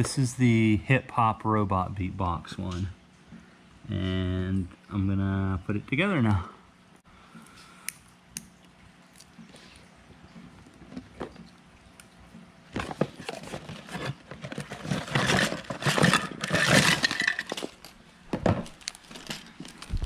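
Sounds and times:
cardboard box being opened: 12.8s - 17.0s
plastic bags crinkling: 12.8s - 18.0s, 18.6s - 20.0s.

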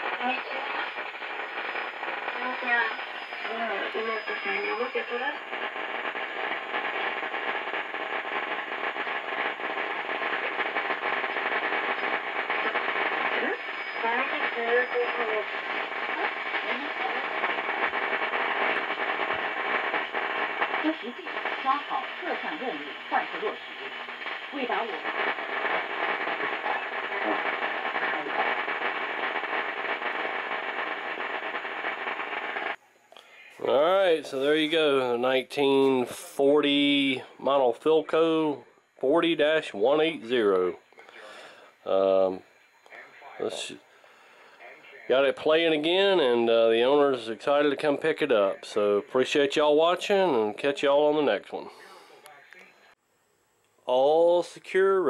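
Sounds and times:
rising radio whistle: 0.0s - 6.3s, 9.5s - 33.6s
radio static hiss: 0.0s - 53.0s, 53.9s - 55.0s
faint broadcast voice: 0.1s - 0.9s, 12.6s - 18.0s, 20.7s - 25.3s, 26.4s - 28.7s, 41.9s - 49.6s, 50.3s - 53.0s.

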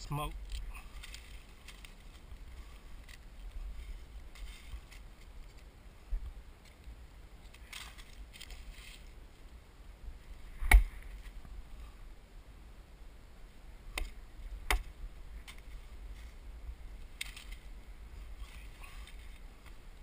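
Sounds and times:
dry leaves and twigs rustling: 0.0s - 12.2s, 13.4s - 20.0s
wood chopping crack: 10.6s - 11.1s, 13.9s - 15.6s.

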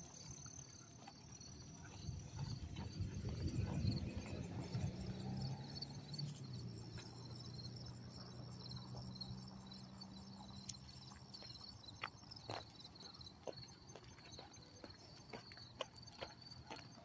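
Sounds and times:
insects chirping: 0.0s - 17.0s
footsteps scuffing on pavement: 10.6s - 17.0s.

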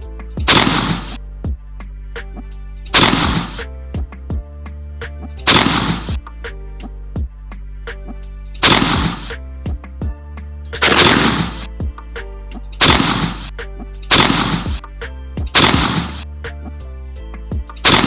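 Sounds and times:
background music: 0.0s - 18.0s
shotgun blasts: 0.4s - 1.2s, 2.9s - 3.6s, 5.5s - 6.2s, 8.6s - 9.4s, 10.8s - 11.7s, 12.8s - 14.8s, 15.5s - 16.2s.

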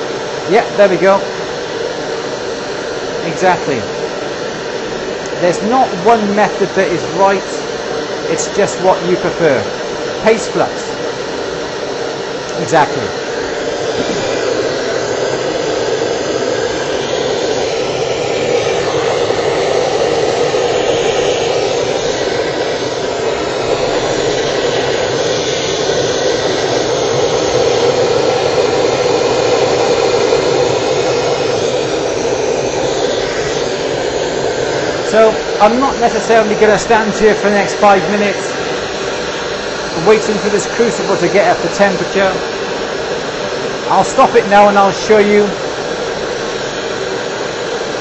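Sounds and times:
gas blowtorch burning: 0.0s - 48.0s.

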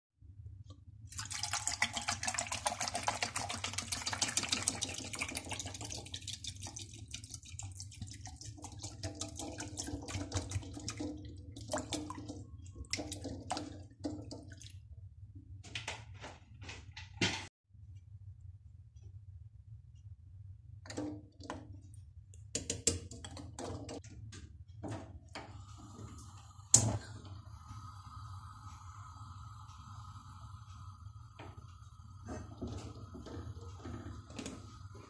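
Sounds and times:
water pouring into a pan: 1.1s - 14.5s
water dripping: 1.1s - 14.8s.

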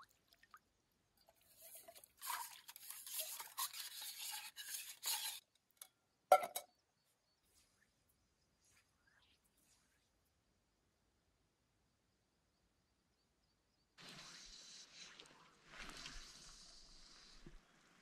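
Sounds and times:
scrubbing mug in water: 1.4s - 5.4s
metal mug clink: 6.3s - 6.7s.

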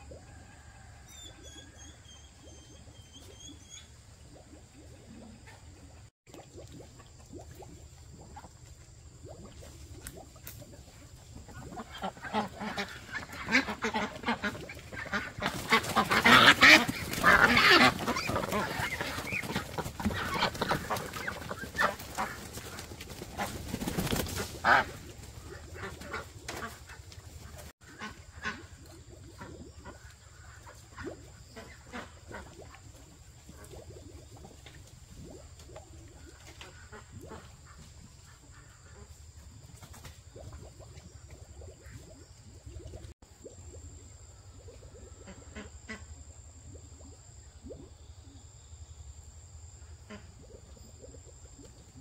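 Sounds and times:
ducks quacking: 11.5s - 28.8s, 31.6s - 32.6s.

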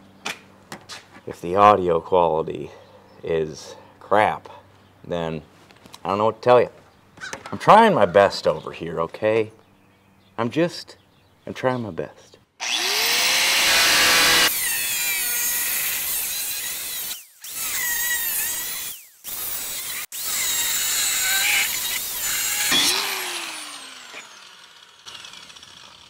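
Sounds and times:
angle grinder cutting steel: 12.6s - 26.0s.

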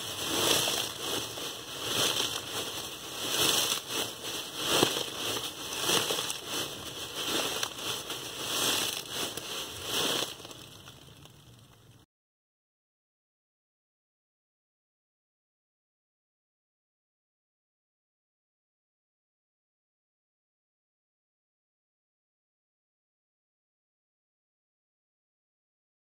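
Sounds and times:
dry leaves crunching in bag: 0.0s - 11.6s.

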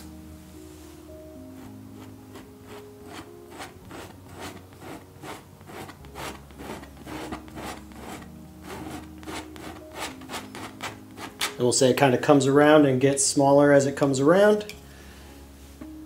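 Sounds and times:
palette knife scraping canvas: 1.5s - 11.6s.

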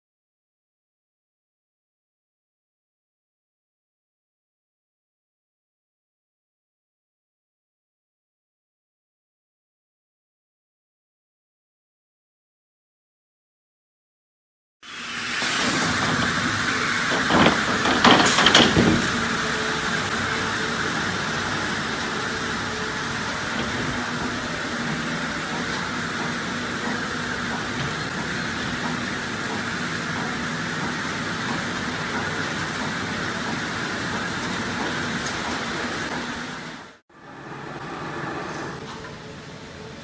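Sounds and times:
conveyor machinery hum: 14.9s - 40.0s
sharp knocks and clanks: 17.1s - 19.3s.

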